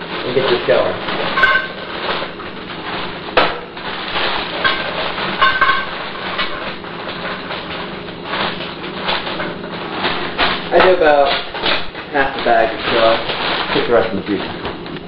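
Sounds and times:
frozen vegetables rattling in pot: 0:00.0 - 0:14.9
plastic bag crinkling: 0:00.0 - 0:15.0
short metallic rings: 0:01.3 - 0:02.0, 0:04.6 - 0:06.6.

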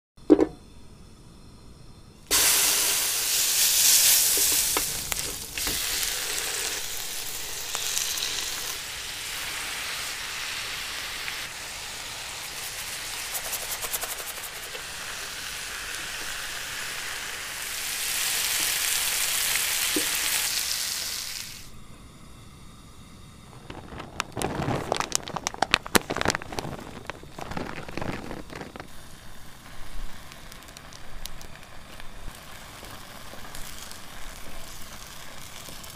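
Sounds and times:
food sizzling in hot oil: 0:02.3 - 0:21.8, 0:23.7 - 0:35.9
sharp crackles and knocks: 0:04.3 - 0:05.9, 0:23.5 - 0:35.9.

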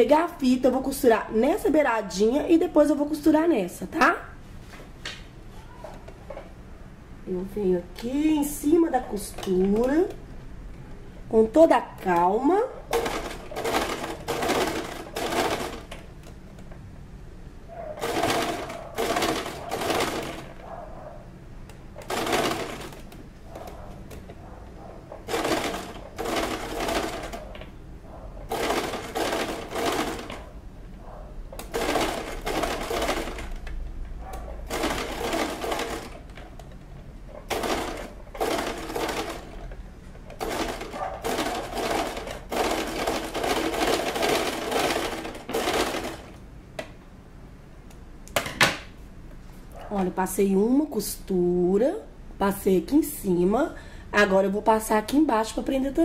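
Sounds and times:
sewing machine stitching: 0:12.9 - 0:16.0, 0:18.0 - 0:20.7, 0:22.0 - 0:24.4, 0:25.1 - 0:27.6, 0:28.5 - 0:30.5, 0:31.6 - 0:33.7, 0:34.5 - 0:46.4.

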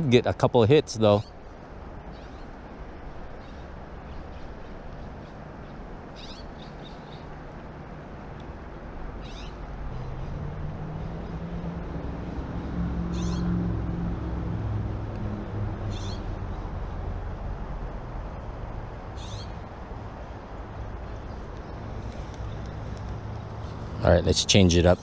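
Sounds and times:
distant engine drone: 0:00.0 - 0:25.0
bird calling: 0:03.3 - 0:07.3, 0:09.2 - 0:11.6, 0:13.1 - 0:13.6, 0:15.8 - 0:16.9, 0:19.1 - 0:19.7.

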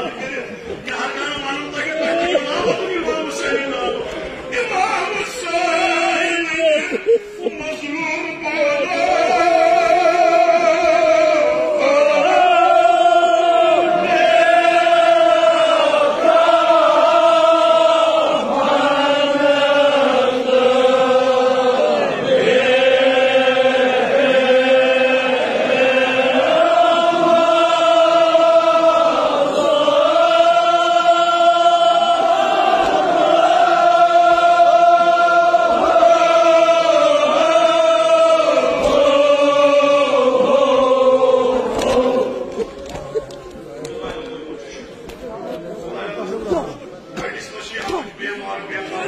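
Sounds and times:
men chanting together: 0:07.7 - 0:42.7.

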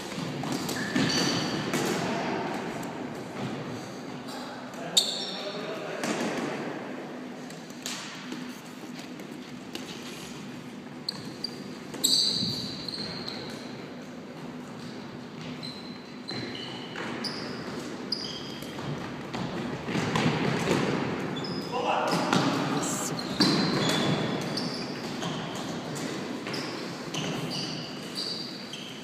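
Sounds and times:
shoes squeaking on floor: 0:00.1 - 0:01.7, 0:04.9 - 0:05.5, 0:11.0 - 0:13.8, 0:15.4 - 0:20.2, 0:21.3 - 0:25.7, 0:26.4 - 0:29.0.

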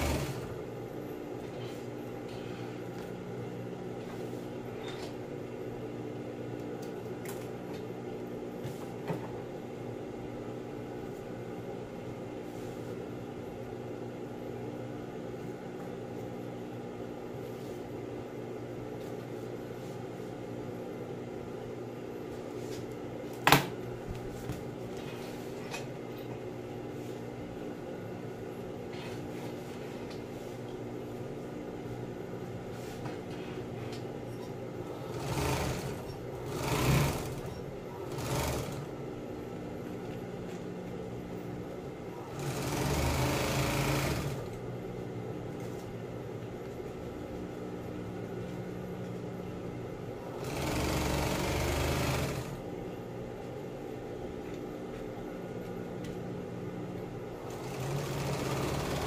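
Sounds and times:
sewing machine stitching: 0:00.0 - 0:00.6, 0:35.0 - 0:38.9, 0:42.2 - 0:44.6, 0:50.3 - 0:52.6, 0:57.4 - 0:59.0
sewing machine motor hum: 0:00.0 - 0:00.8, 0:34.7 - 0:40.3, 0:42.0 - 0:44.7, 0:50.1 - 0:52.7, 0:57.3 - 0:59.0.

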